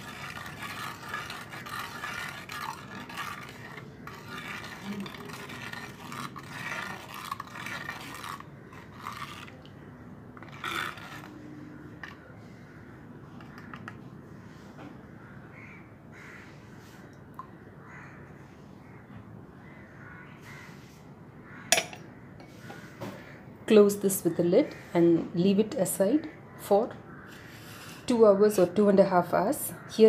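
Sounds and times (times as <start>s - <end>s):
spoon scraping clay pot: 0.0s - 9.8s, 10.4s - 12.4s, 13.4s - 14.0s, 27.3s - 29.0s.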